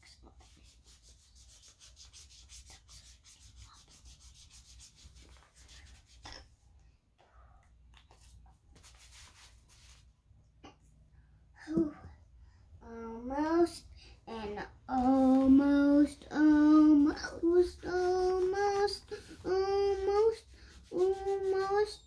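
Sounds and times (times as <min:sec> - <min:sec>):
marker scribbling on paper: 0:00.0 - 0:06.4, 0:18.0 - 0:22.0.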